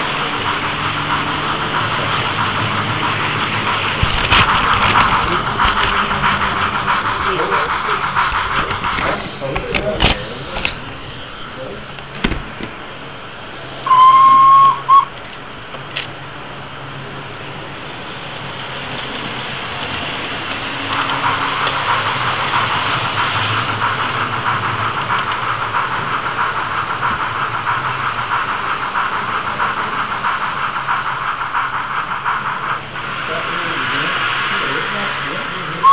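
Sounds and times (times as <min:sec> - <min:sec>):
pulsing steam chuff: 0:00.0 - 0:35.9
steam hiss: 0:00.0 - 0:35.9
steam whistle blast: 0:13.8 - 0:15.2.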